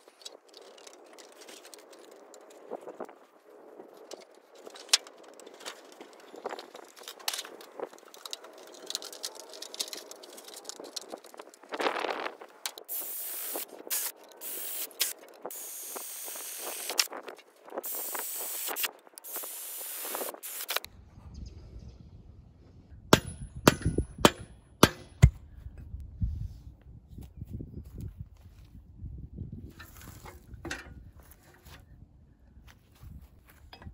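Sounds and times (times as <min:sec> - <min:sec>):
cordless drill boring through metal: 0:12.9 - 0:17.1, 0:17.9 - 0:20.8.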